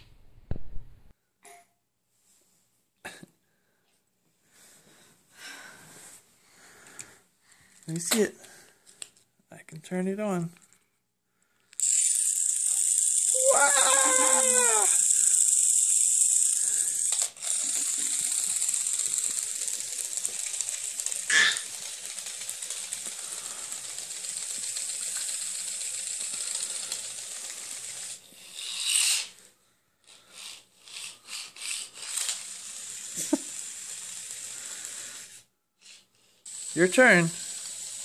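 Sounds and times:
toy legs rattling on wooden floor: 11.8s - 29.3s
toy robot motor buzzing: 11.8s - 29.4s, 30.0s - 38.0s.

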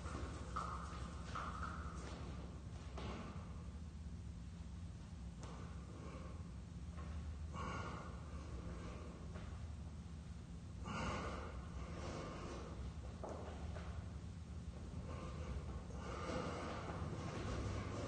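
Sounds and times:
low steady hum: 0.0s - 18.0s
man breathing hard: 7.5s - 9.4s, 10.8s - 12.8s, 14.9s - 18.0s.

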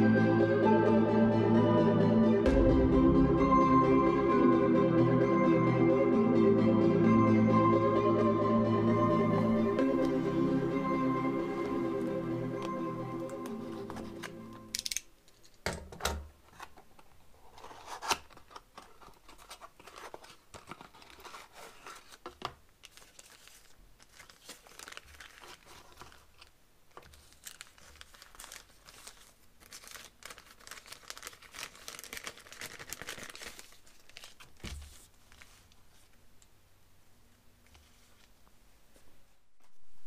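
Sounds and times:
cardboard packaging opened: 17.4s - 35.6s
plastic bag crinkling: 22.8s - 35.7s.

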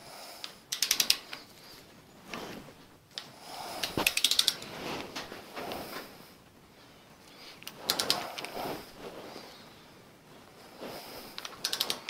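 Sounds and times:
ratchet wrench clicking: 0.7s - 1.3s, 4.0s - 4.6s, 11.4s - 12.0s.

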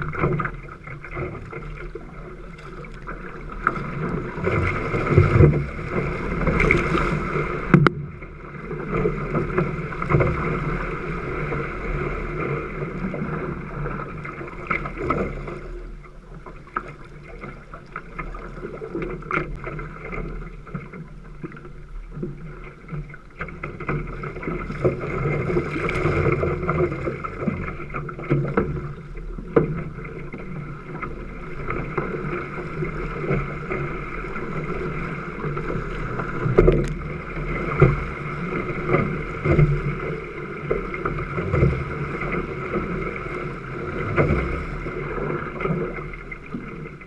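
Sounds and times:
paddle strokes in water: 0.0s - 47.0s
water splashing along hull: 0.0s - 47.0s
wind on microphone: 34.6s - 46.3s.

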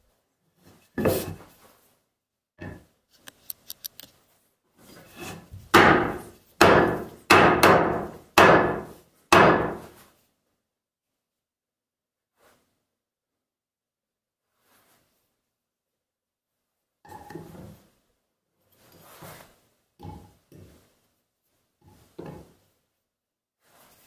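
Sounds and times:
small clicks: 3.1s - 4.2s
hatchet chopping wooden log: 5.7s - 9.9s.

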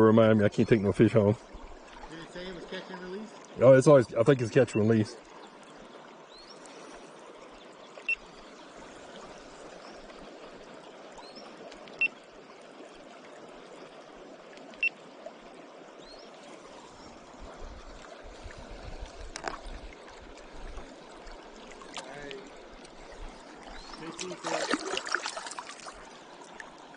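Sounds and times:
river water rushing: 5.1s - 26.9s.

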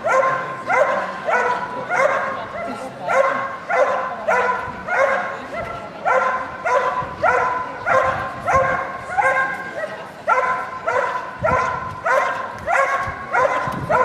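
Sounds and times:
dog barking: 0.0s - 14.0s.

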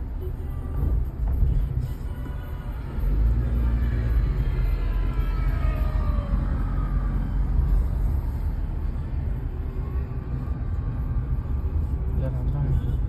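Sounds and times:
car cabin rumble: 0.1s - 3.7s.

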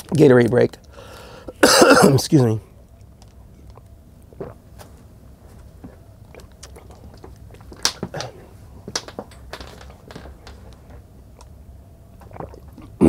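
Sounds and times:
person sipping and swallowing: 3.6s - 4.7s, 5.8s - 8.4s, 12.2s - 13.0s.

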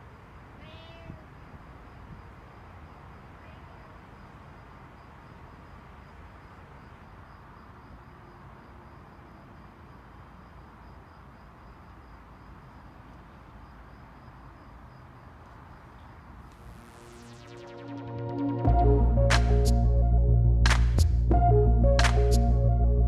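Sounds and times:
faint background noise: 0.0s - 17.6s
cricket chirping: 0.0s - 18.2s.

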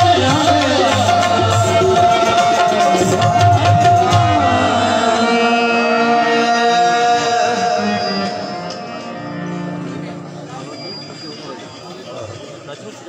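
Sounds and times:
harmonium: 0.0s - 12.4s.

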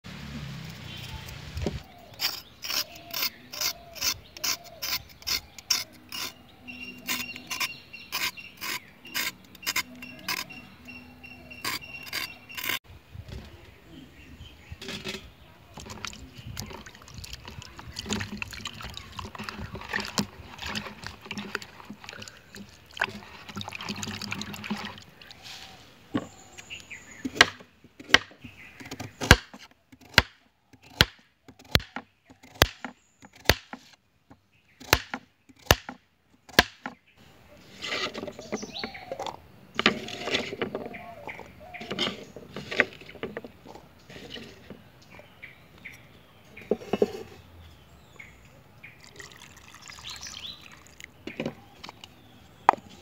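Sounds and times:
knife scraping a carrot: 2.1s - 10.7s, 11.5s - 12.8s, 37.6s - 39.0s, 39.8s - 40.6s
knife chopping on wooden board: 34.8s - 37.0s.

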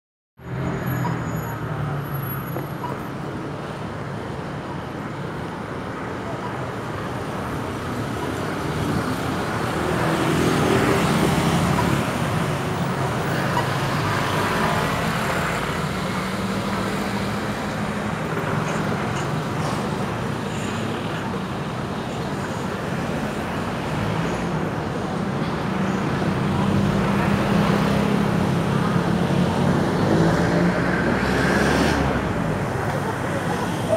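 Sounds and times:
motor vehicles passing: 6.9s - 33.9s.

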